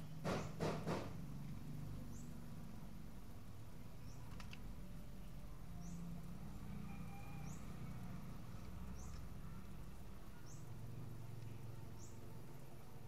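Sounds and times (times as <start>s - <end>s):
low steady hum: 1.1s - 13.0s
bird chirping: 1.9s - 2.5s, 3.8s - 4.6s, 5.2s - 13.0s.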